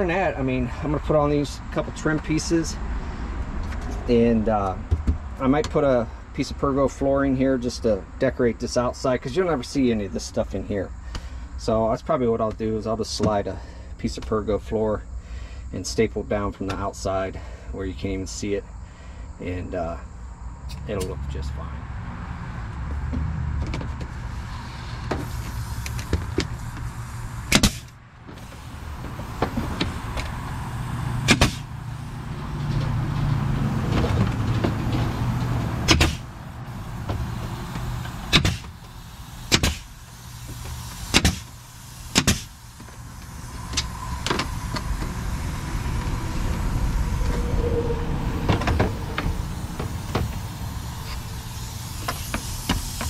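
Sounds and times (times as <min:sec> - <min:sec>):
pneumatic stapler shots: 0:25.1 - 0:30.4, 0:31.1 - 0:32.0, 0:34.9 - 0:44.8, 0:48.6 - 0:53.0
low hum: 0:42.5 - 0:51.6.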